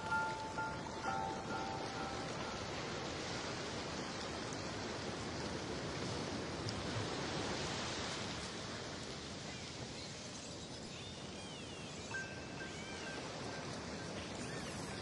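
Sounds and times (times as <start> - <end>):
underwater water rush: 0.0 - 9.4.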